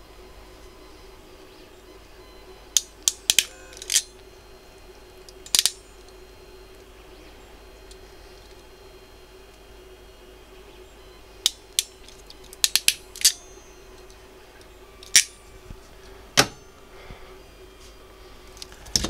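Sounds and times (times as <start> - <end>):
crimping pliers clicking: 2.8 - 4.1, 5.3 - 5.8, 11.4 - 13.4, 15.0 - 15.4
pliers clacks: 15.0 - 15.4.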